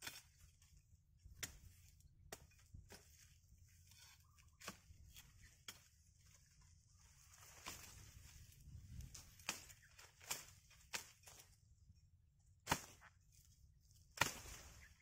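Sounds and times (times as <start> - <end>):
twigs and leaves snapping: 7.3 - 11.6, 14.1 - 15.0.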